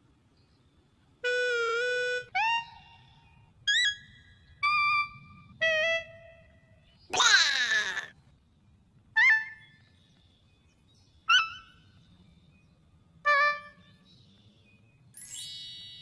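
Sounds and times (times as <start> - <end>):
piping whistle notes: 1.2 - 3.0
ringing chime tone: 15.2 - 16.0.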